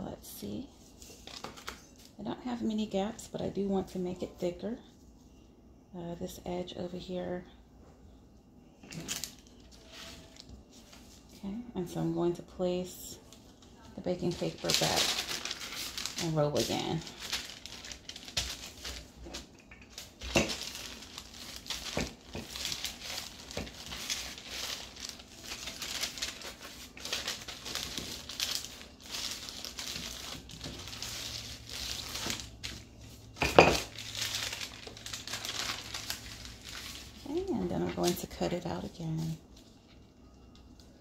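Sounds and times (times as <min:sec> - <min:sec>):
baking paper crinkling under rolling pin: 0:08.9 - 0:40.1.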